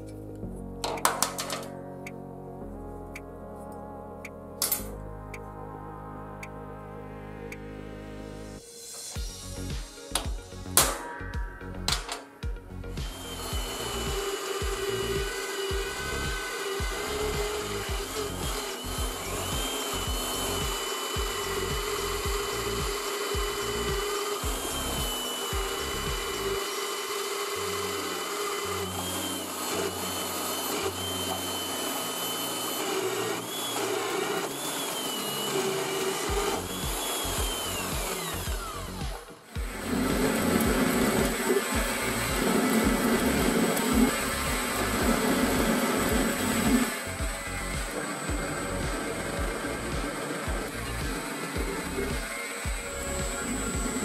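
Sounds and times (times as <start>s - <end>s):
background music with steady beat: 0.0s - 54.0s
bit drilling through metal: 8.9s - 54.0s
drill press whining: 12.9s - 54.0s.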